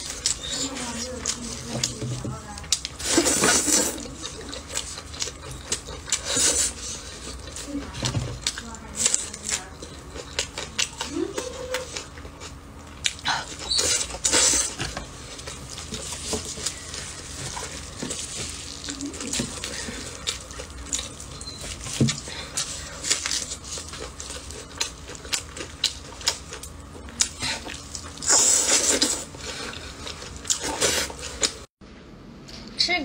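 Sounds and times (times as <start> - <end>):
chewing and smacking: 0.0 - 31.7
crinkling plastic gloves: 15.4 - 25.1.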